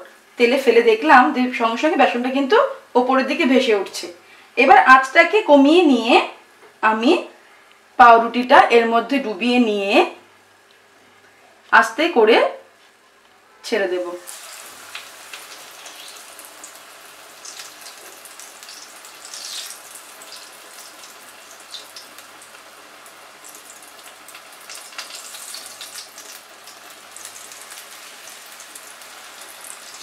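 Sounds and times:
bread deep-frying in oil: 14.2 - 30.0.

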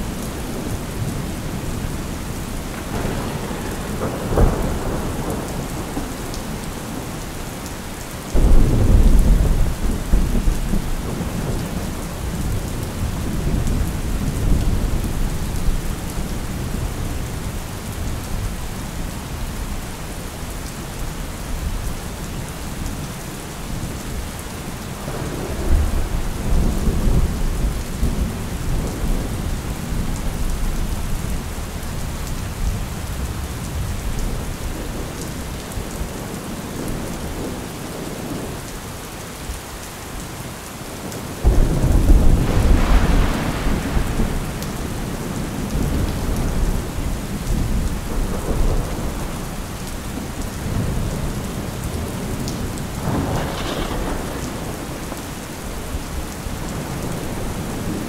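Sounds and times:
thunder rumbling: 0.0 - 7.2, 8.3 - 17.2, 25.1 - 30.8, 41.4 - 58.0
steady rain: 0.0 - 58.0
loud thunderclap: 2.8 - 6.2, 8.3 - 12.6, 41.4 - 49.5, 53.0 - 55.2.

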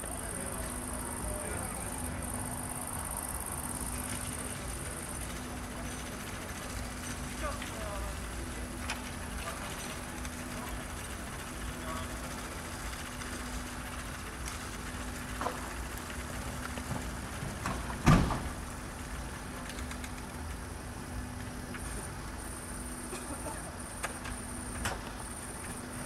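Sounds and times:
light clicks and rattles: 4.0 - 20.7.

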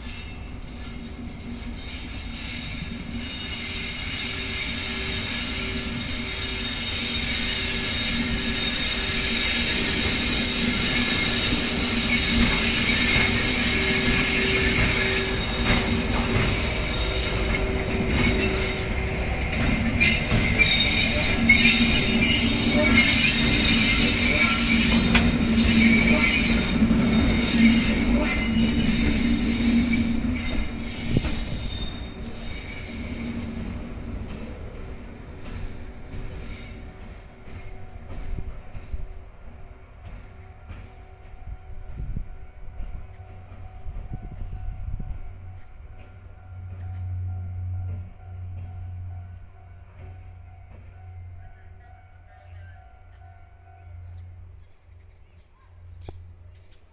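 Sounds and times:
locomotive wheels squealing: 0.0 - 33.9, 35.5 - 37.7.

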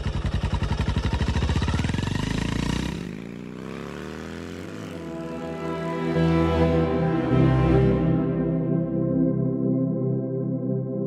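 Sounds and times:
motorcycle engine idling: 0.0 - 5.4.

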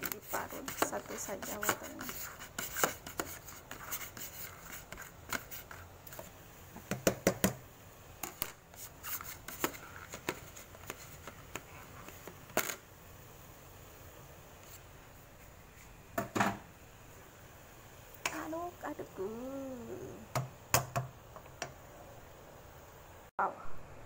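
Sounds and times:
utensils clicking on cookware: 0.0 - 3.8.

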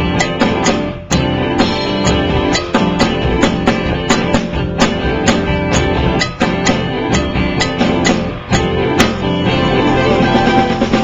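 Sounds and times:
guitar-led band music: 0.0 - 11.0
sharp percussive strikes: 0.0 - 11.0.

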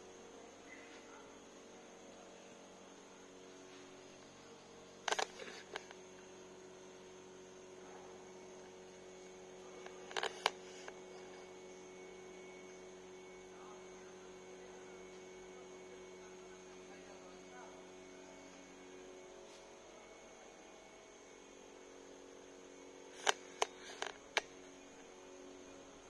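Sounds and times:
electrical mains hum: 0.0 - 26.0
sharp clicks: 23.2 - 24.5.

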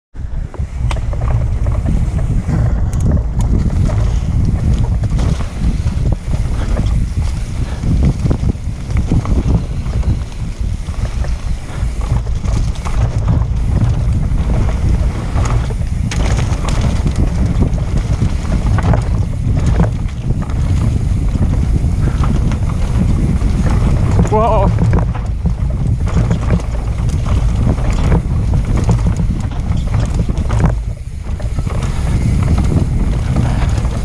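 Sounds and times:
bike rattling: 0.1 - 34.0
wind buffeting microphone: 0.1 - 34.0
tyres rumbling on dirt: 0.2 - 34.0.

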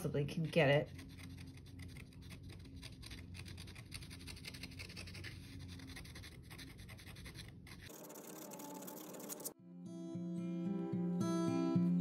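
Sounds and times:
knife blade scraping paper: 0.4 - 9.6.

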